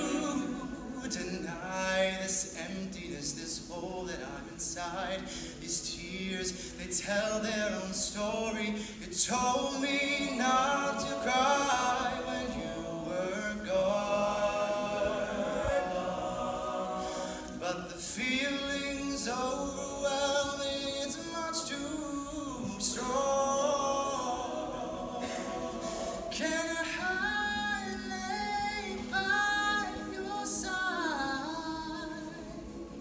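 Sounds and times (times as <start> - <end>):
male group singing in harmony: 0.0 - 33.0.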